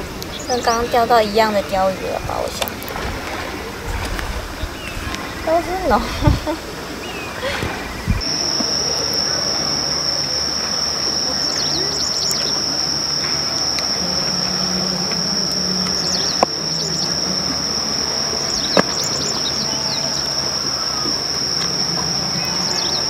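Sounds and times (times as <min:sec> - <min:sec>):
low droning hum: 0:00.0 - 0:23.0
bird chirps: 0:07.0 - 0:13.8
insect singing high note: 0:08.2 - 0:23.0.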